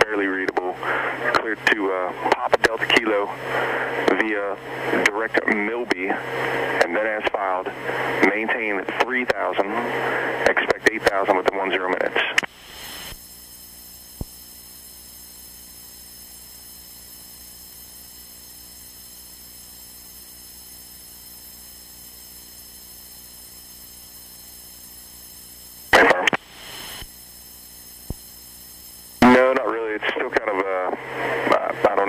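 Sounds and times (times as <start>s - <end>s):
electrical hum on radio feed: 0.0s - 32.0s
burst of radio noise: 6.5s - 13.2s, 25.9s - 27.1s, 29.2s - 32.0s
radio clicks: 25.9s - 27.1s.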